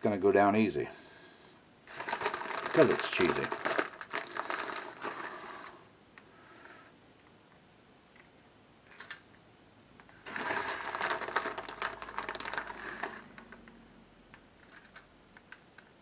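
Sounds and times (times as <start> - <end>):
plastic bag crinkling: 1.9 - 5.8, 10.1 - 13.6.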